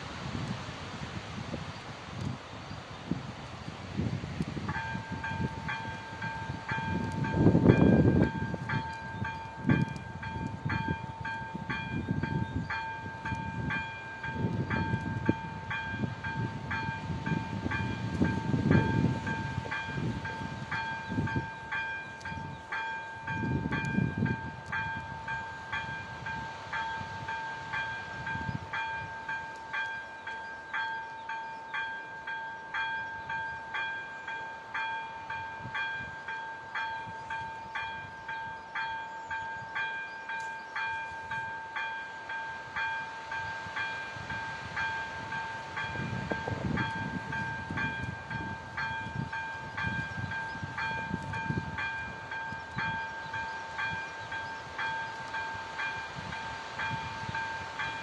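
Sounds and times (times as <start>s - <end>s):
level-crossing warning bell ringing: 4.7s - 58.0s.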